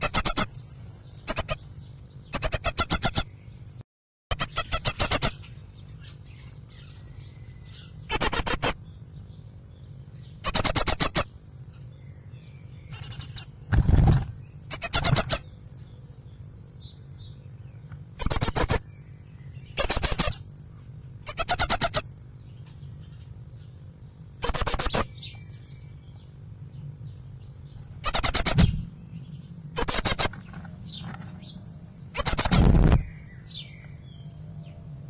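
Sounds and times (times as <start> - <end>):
bird calling rapid repeated notes: 0.0 - 0.5, 1.2 - 1.6, 2.3 - 3.3, 4.3 - 5.5, 8.1 - 8.8, 10.4 - 11.3, 14.7 - 15.5, 18.2 - 18.8, 19.8 - 20.5, 21.3 - 22.0, 24.4 - 25.2, 28.0 - 28.9, 29.8 - 30.4, 32.1 - 33.2
steady low hum: 0.0 - 35.0.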